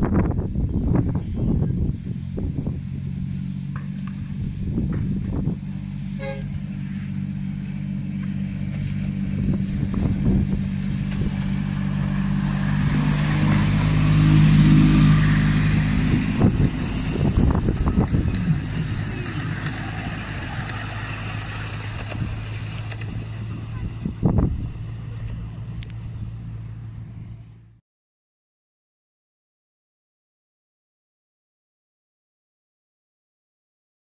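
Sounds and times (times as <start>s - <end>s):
locomotive engine running: 0.4s - 27.8s
wheels clicking on track: 4.9s - 26.7s.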